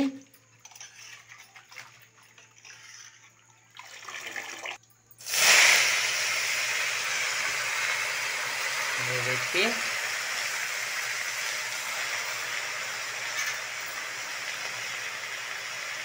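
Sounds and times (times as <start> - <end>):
greens sizzling in hot oil: 5.2 - 16.0.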